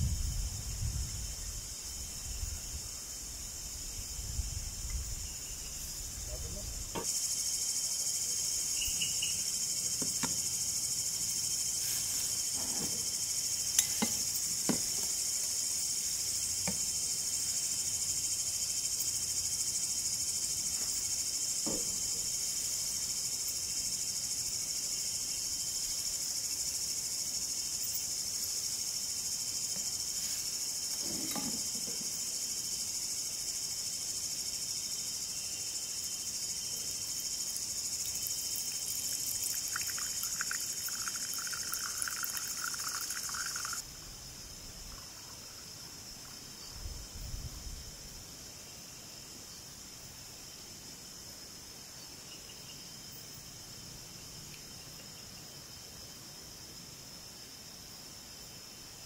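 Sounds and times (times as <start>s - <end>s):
crickets chirping: 0.0s - 59.0s.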